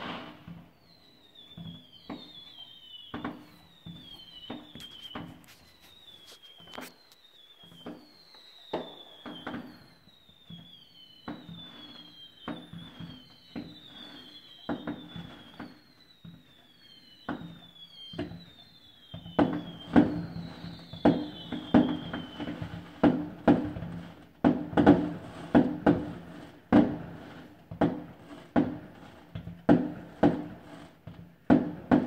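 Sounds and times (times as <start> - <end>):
high falling whistle: 0.0 - 24.2
fireworks bursting with crackle: 0.0 - 32.0.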